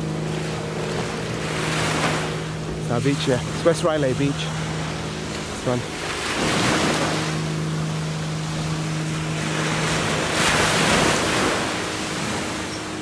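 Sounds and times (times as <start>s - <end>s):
boat engine droning: 0.0s - 13.0s
waves washing onto beach: 0.0s - 13.0s.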